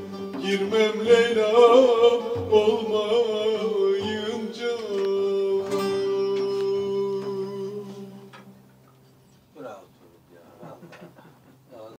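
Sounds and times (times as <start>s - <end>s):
saz playing folk music: 0.0s - 9.4s.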